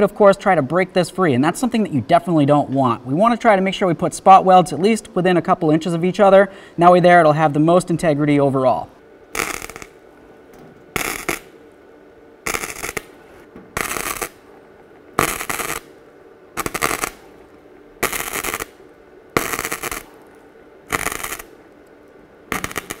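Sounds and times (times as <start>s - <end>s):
welder arc crackling: 5.7s - 23.0s.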